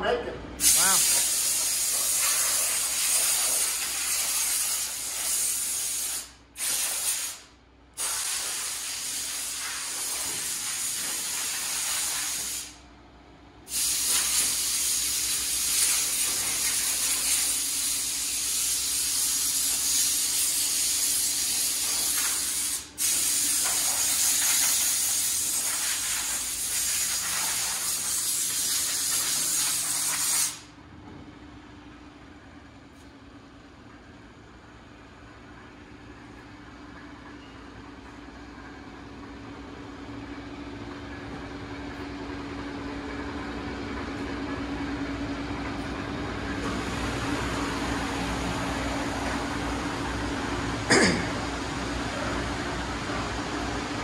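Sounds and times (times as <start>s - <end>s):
compressed air hissing from air gun: 0.6s - 12.8s, 13.7s - 30.7s.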